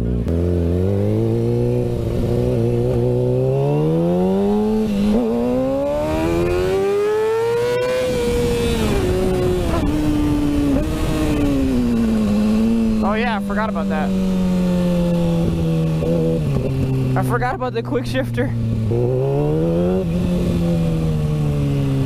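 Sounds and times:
motorcycle engine accelerating: 0.0s - 22.0s
wind rumbling on microphone: 7.5s - 13.4s, 14.1s - 17.2s, 18.6s - 22.0s.

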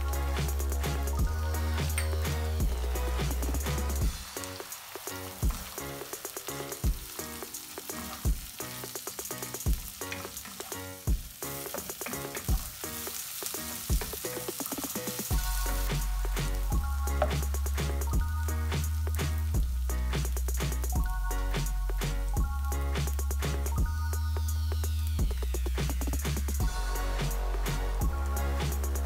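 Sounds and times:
deep bass: 0.0s - 4.2s, 15.3s - 29.0s
music with a steady beat: 0.0s - 29.0s
onions sizzling in oil: 0.0s - 29.0s.

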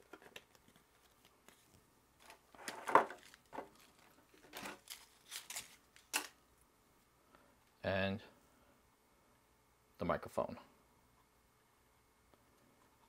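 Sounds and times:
paper rustling and crinkling: 0.0s - 6.4s.

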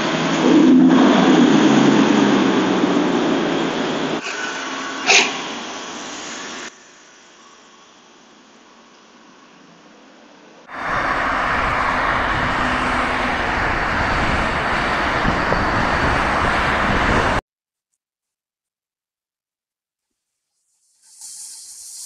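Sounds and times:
road traffic driving past: 10.6s - 17.4s.

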